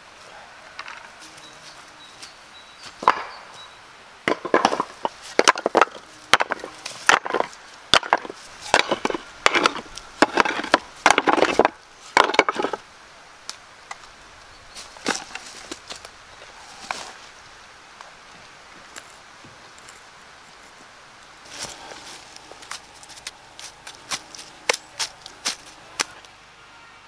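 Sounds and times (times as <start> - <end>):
stone and trowel knocks and scrapes: 4.3 - 12.8.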